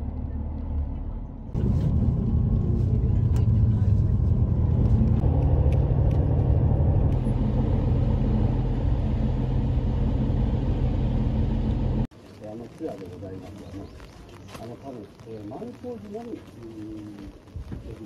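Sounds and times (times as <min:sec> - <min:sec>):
bus engine and road noise: 0:00.0 - 0:12.2.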